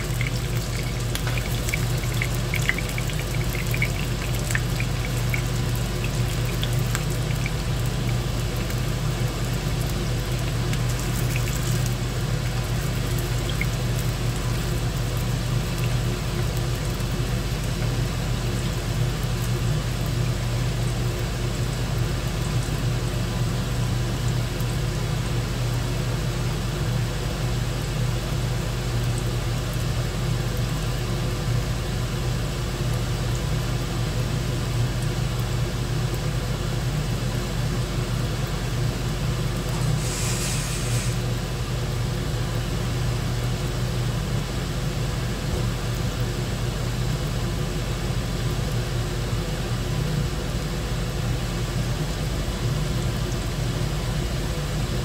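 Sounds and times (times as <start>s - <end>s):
low mechanical hum: 0.0s - 55.0s
brief hiss: 40.0s - 41.2s.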